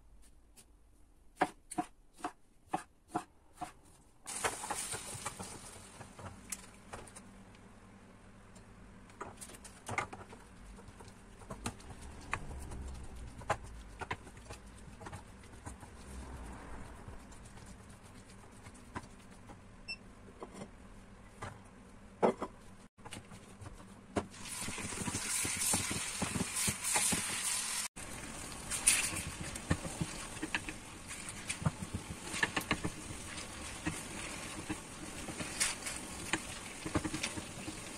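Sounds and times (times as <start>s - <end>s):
frying sizzle: 4.3s - 6.2s, 24.3s - 37.9s
wooden spoon stirring in pan: 23.0s - 37.9s.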